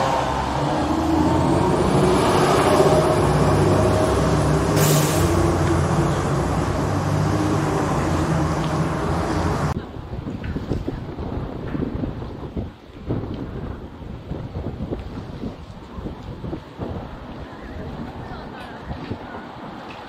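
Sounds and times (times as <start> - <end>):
fire truck engine droning: 0.0 - 9.8
air brake hiss: 4.7 - 5.4.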